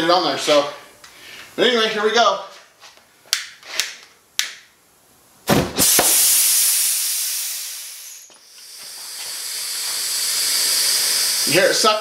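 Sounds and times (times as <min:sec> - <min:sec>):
loud hiss of air: 0:05.5 - 0:12.0.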